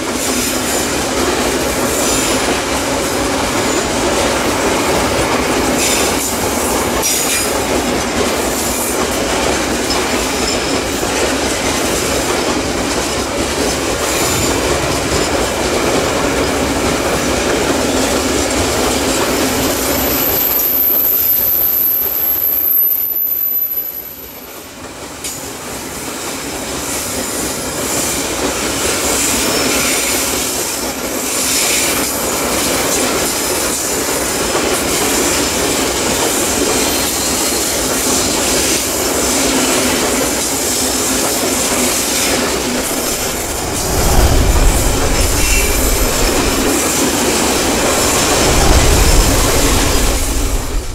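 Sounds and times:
train wheel clatter: 0.0s - 50.9s
train wheels squealing: 5.7s - 7.6s, 18.5s - 34.0s
deep rumble: 42.6s - 50.9s.

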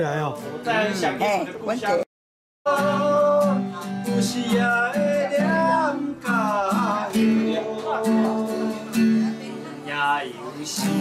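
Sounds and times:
acoustic guitar: 0.0s - 2.0s, 2.7s - 11.0s
man singing: 2.7s - 9.2s, 10.2s - 11.0s.

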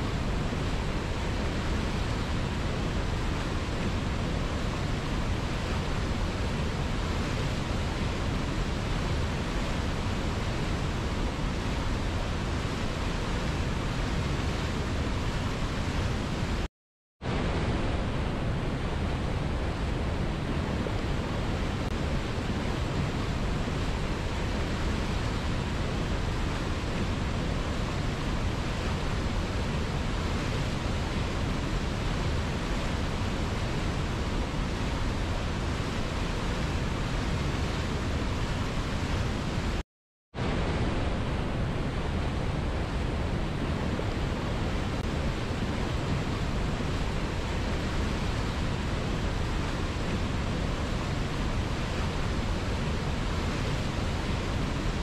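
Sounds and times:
river rushing over boulders: 0.0s - 39.8s, 40.4s - 55.0s.

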